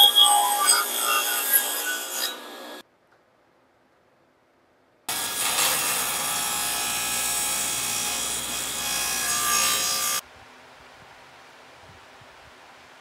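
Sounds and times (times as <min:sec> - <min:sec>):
power saw cutting wood: 0:00.0 - 0:02.8, 0:05.1 - 0:10.2.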